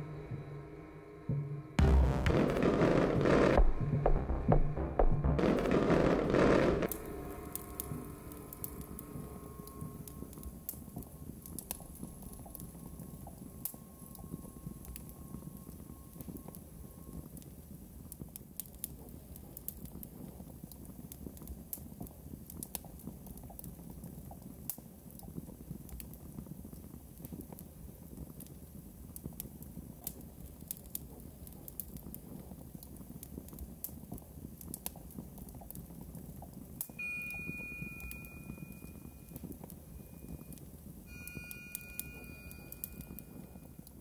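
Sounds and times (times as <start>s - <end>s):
low grainy noise: 0.0s - 18.1s.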